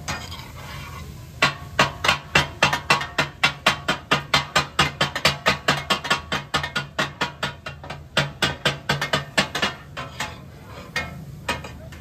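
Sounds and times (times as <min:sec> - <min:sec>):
metal spatulas clanking on griddle: 0:00.0 - 0:12.0.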